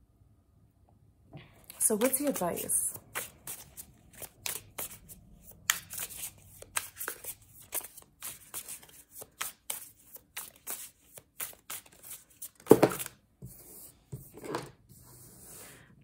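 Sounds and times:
cards being shuffled: 1.8s - 13.2s.

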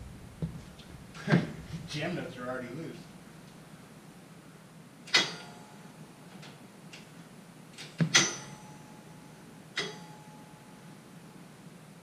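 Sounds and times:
metallic clanks of tools: 5.1s - 5.6s, 7.8s - 8.6s, 9.8s - 10.2s.

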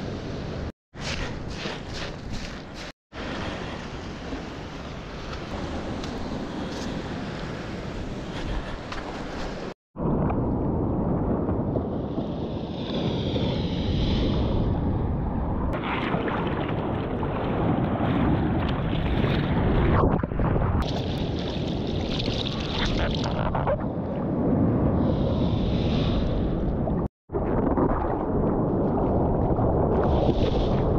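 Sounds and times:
surf and spray: 0.0s - 9.8s, 24.9s - 26.7s
wind buffeting camera: 0.0s - 30.9s
rushing water: 20.8s - 23.6s.

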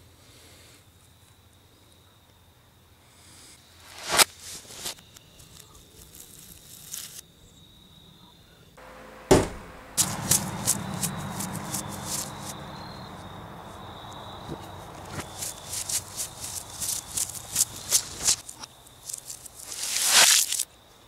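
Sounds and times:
footsteps crunching on dry leaves: 3.9s - 7.2s, 10.0s - 20.6s.

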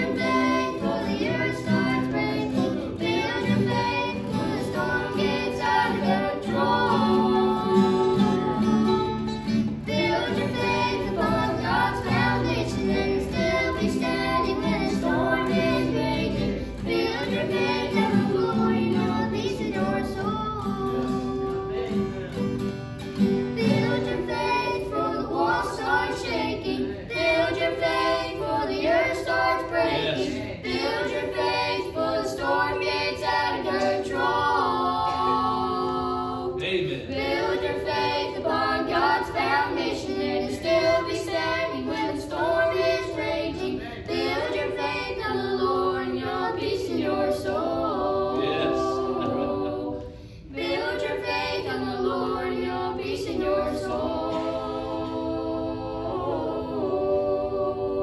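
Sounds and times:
children singing in harmony: 0.0s - 22.3s, 23.2s - 58.0s
strummed acoustic guitar: 0.0s - 45.8s
ukulele: 0.0s - 58.0s.

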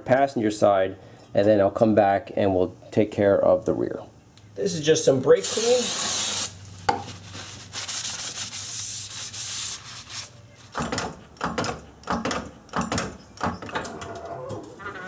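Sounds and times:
spray hiss: 5.4s - 6.6s.

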